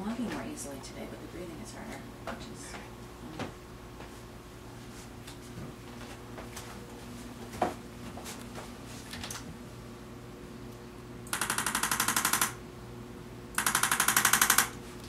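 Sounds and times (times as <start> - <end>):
rapid mechanical taps: 11.3 - 12.6, 13.6 - 14.8.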